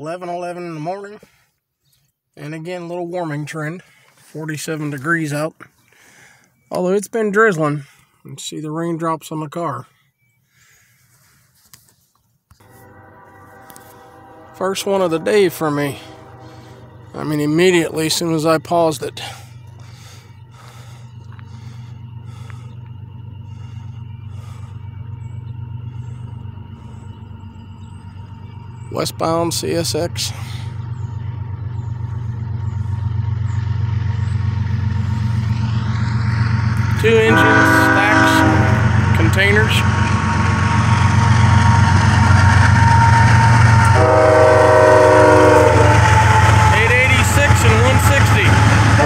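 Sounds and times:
diesel locomotive engine rumble: 12.6 - 49.0
locomotive horn chord: 12.6 - 49.0.

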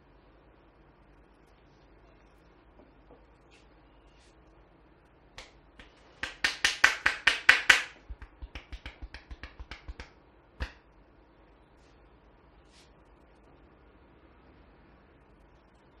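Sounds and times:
hair snapping between fingers: 5.4 - 10.9.

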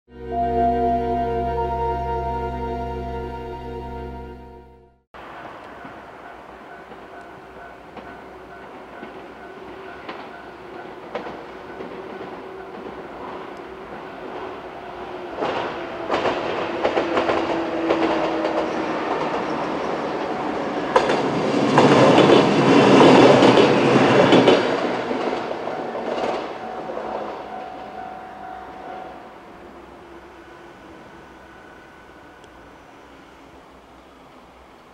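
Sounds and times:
level crossing bell ringing: 0.1 - 5.0
train wheels clacking on rails: 5.2 - 29.0.

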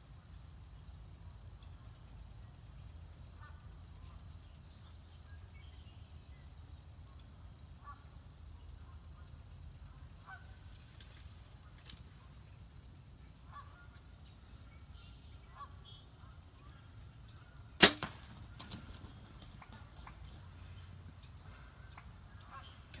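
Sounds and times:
wild turkeys calling: 15.0 - 23.0
bow shot snap: 17.8 - 18.4.

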